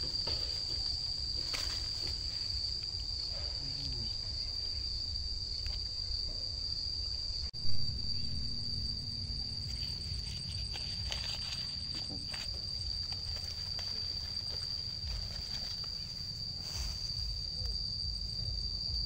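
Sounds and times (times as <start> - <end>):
high-pitched insect chorus: 0.0 - 19.0
low rumble: 7.4 - 19.0.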